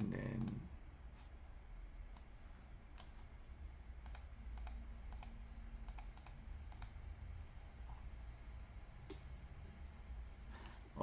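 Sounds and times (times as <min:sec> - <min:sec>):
low room hum: 0:00.0 - 0:11.0
faint computer mouse clicks: 0:04.0 - 0:07.0.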